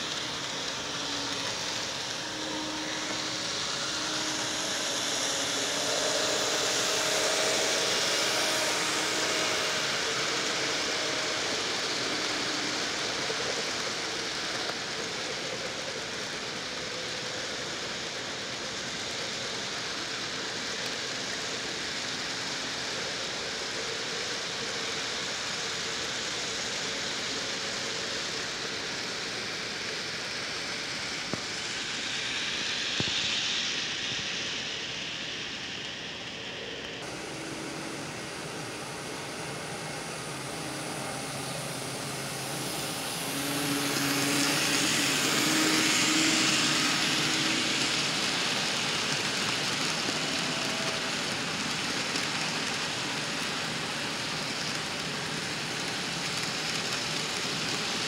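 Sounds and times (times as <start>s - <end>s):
electric motor hum: 0.0s - 14.6s, 37.0s - 52.5s
model train wheels clattering: 0.0s - 58.0s.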